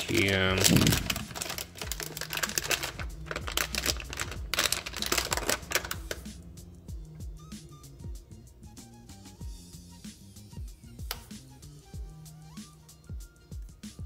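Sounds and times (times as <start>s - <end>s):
bubble wrap and plastic crinkling: 0.0s - 6.3s
soft background music: 0.0s - 14.0s.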